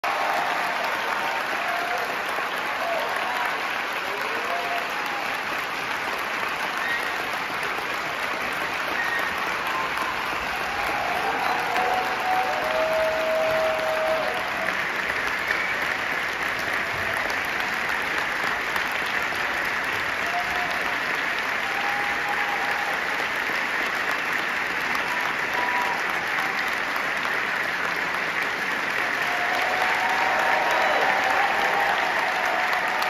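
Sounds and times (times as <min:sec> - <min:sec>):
audience applauding: 0:00.0 - 0:33.0
crowd calls: 0:08.9 - 0:15.8, 0:29.1 - 0:33.0.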